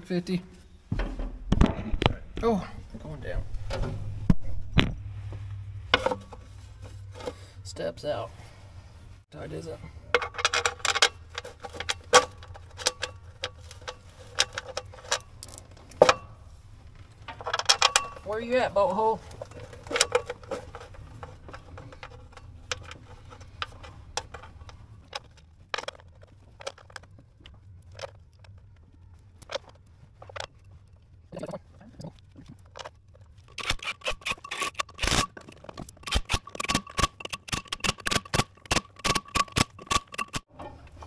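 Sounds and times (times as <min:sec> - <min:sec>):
metallic tool clicks and scrapes: 0:33.4 - 0:40.5.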